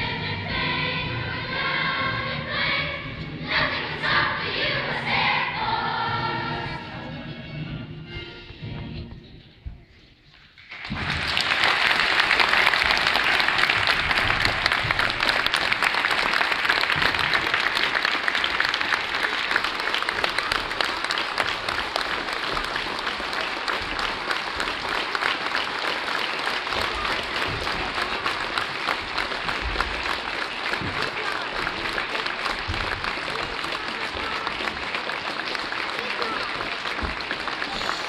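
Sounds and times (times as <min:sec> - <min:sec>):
audience applauding: 0:10.6 - 0:38.0.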